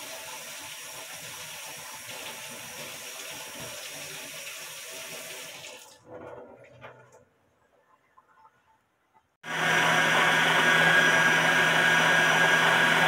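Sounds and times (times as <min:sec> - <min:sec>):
kitchen tap running: 0:00.0 - 0:07.2.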